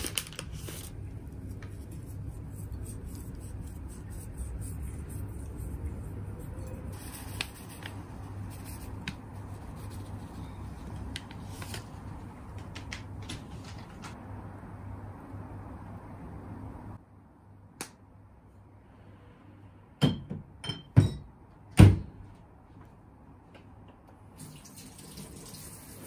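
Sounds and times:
steady low hum: 0:00.8 - 0:12.6.

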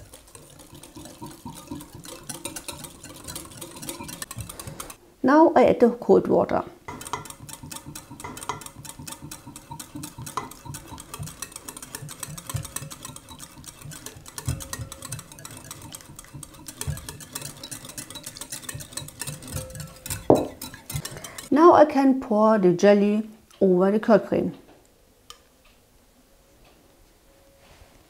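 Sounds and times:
utensil scraping bowl: 0:00.0 - 0:05.0, 0:06.9 - 0:21.6.

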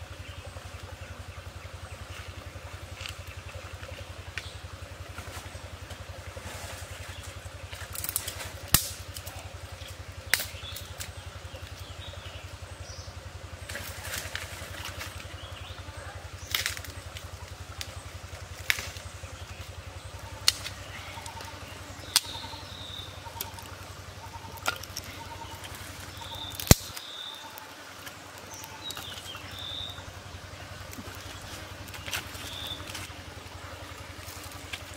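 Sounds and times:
steady low hum: 0:00.0 - 0:34.9
dry sticks snapping: 0:07.7 - 0:11.8, 0:16.4 - 0:22.6, 0:23.2 - 0:30.0, 0:30.8 - 0:33.1.

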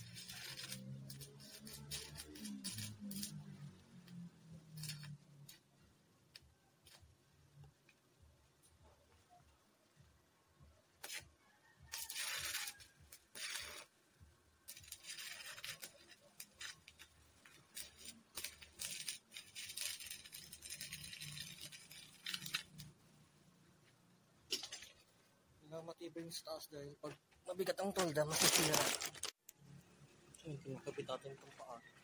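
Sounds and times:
welding arc crackling and hissing: 0:00.0 - 0:05.7, 0:11.0 - 0:11.3, 0:11.9 - 0:14.0, 0:14.6 - 0:23.0.

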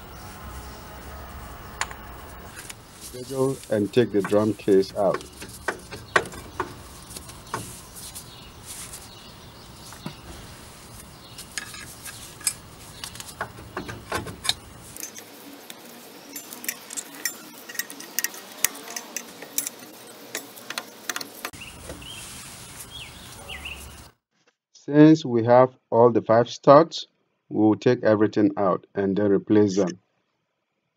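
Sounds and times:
brake drum clinks and scrapes: 0:01.8 - 0:09.2, 0:09.8 - 0:15.3.

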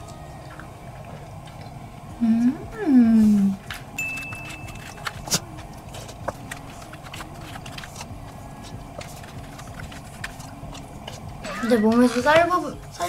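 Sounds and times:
utensil clicks and chewing: 0:00.0 - 0:01.8, 0:03.6 - 0:11.3
low room hum: 0:00.0 - 0:13.0.

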